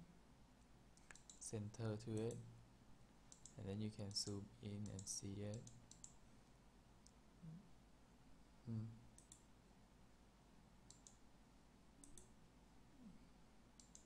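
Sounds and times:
computer mouse clicking: 1.0 - 1.4, 3.3 - 6.2, 9.2 - 9.5, 10.9 - 11.2, 12.0 - 12.3, 13.8 - 14.0
short low voice sound: 8.7 - 9.0.

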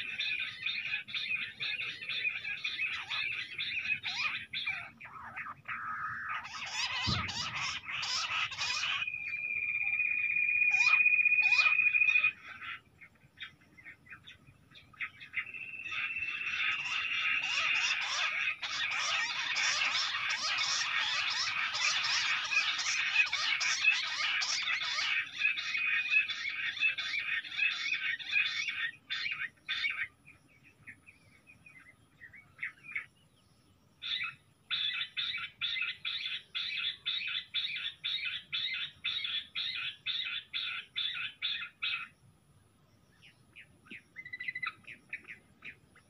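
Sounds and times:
quail chattering call: 0.0 - 14.3, 14.9 - 30.1
dull low thump: 7.0 - 7.7.

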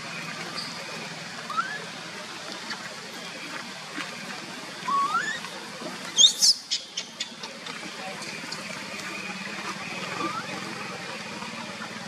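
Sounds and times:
baby monkey squealing: 4.9 - 5.4, 6.2 - 7.2.

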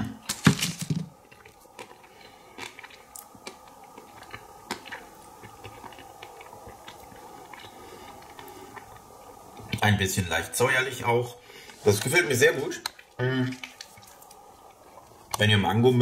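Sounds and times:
person chewing crisp chocolate: 1.1 - 9.8, 12.8 - 15.4.

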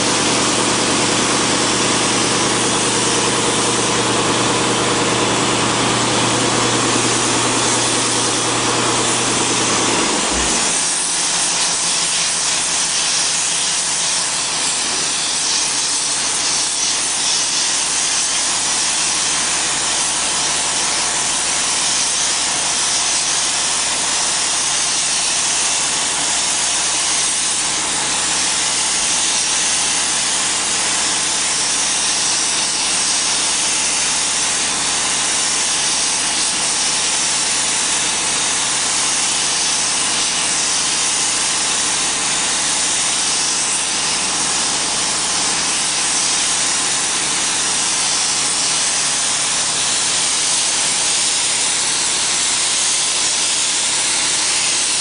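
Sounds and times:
paint spray gun hissing: 0.0 - 55.0.

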